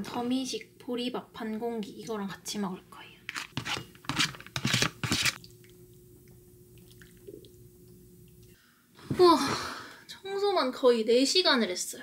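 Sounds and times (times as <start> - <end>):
faint steady hum: 0.0 - 12.0
wet liquid sounds: 4.2 - 8.6.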